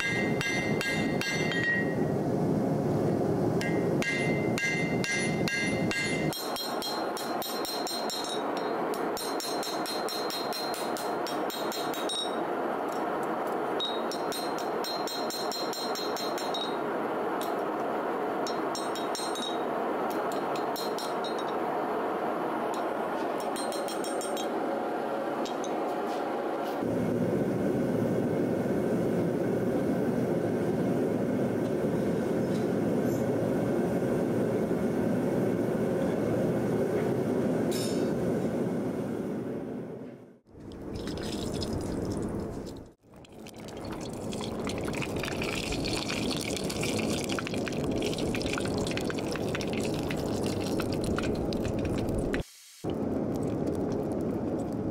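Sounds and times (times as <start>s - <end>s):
hammer striking steel on anvil: 0.0s - 2.0s, 3.6s - 12.4s.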